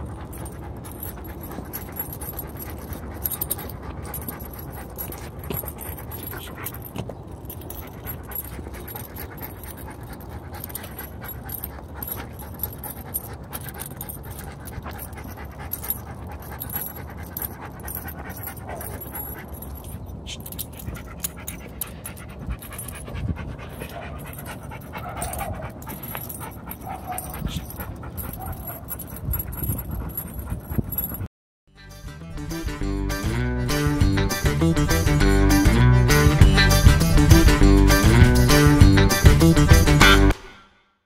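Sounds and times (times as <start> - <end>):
dog panting: 0.0 - 31.3.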